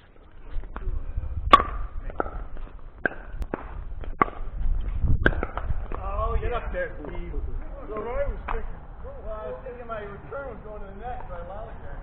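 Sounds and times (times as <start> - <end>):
paddles striking ball: 1.5 - 4.5, 5.2 - 6.0.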